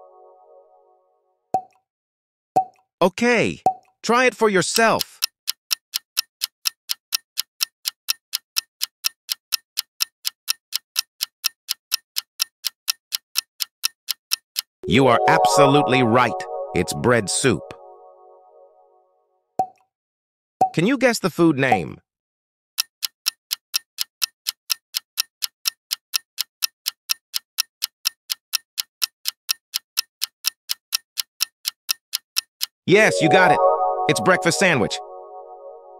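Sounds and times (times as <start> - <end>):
clock ticking: 3.7 - 16.7, 22.8 - 35.7.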